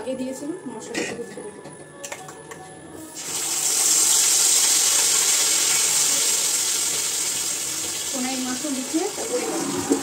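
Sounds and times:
spice paste sizzling in hot oil: 3.2 - 9.4.

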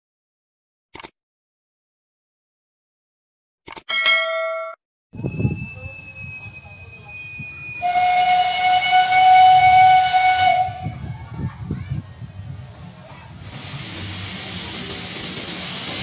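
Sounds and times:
steam locomotive whistle: 5.2 - 11.0.

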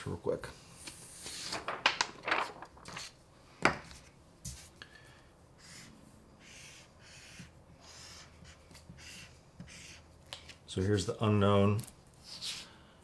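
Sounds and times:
paper tapped down: 1.5 - 3.9
marker drawing on paper: 5.6 - 10.2.

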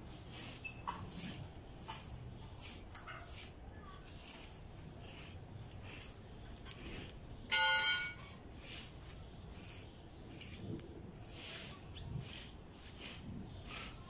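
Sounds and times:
broom sweeping: 0.0 - 14.0
ringing clang: 7.5 - 8.4.

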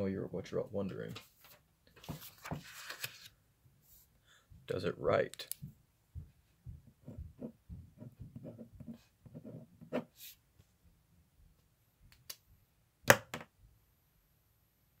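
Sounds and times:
pen scratching on paper: 7.0 - 10.4.

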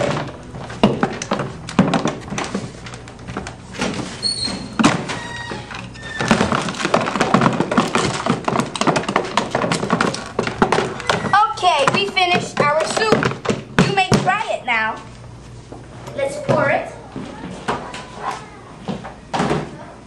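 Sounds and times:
utensil stirring in plastic tub: 5.7 - 14.4.

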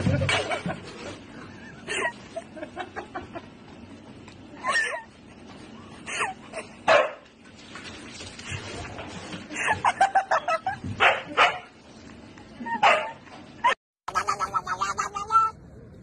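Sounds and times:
dog barking: 6.9 - 7.2, 11.0 - 11.7, 12.8 - 13.2.

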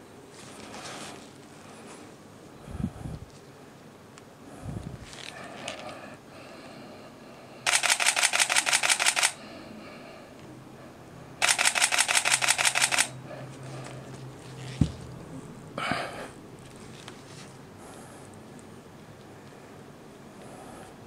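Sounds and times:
camera shutter bursts: 7.7 - 9.4, 11.4 - 13.2.

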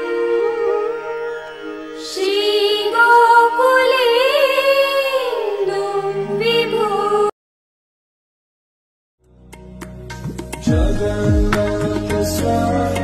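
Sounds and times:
person singing devotional song: 10.6 - 13.0.

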